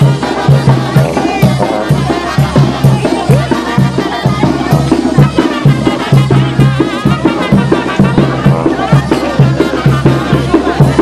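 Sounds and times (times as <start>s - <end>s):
drums: 0.0s - 11.0s
lively band music: 0.0s - 11.0s.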